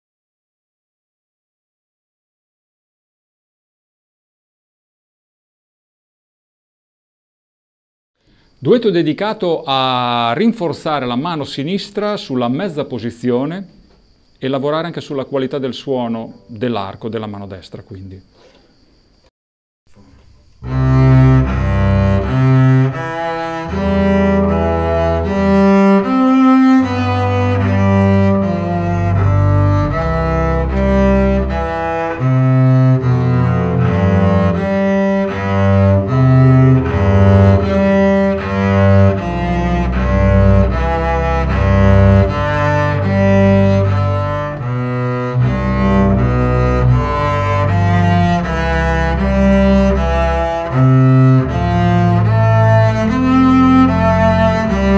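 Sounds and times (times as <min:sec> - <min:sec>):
bowed double bass duet: 0:20.4 - 0:54.9.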